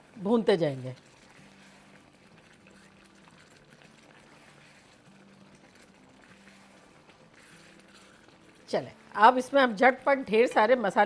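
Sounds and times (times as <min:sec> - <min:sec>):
faint simmering in a wok: 0:01.0 - 0:09.3.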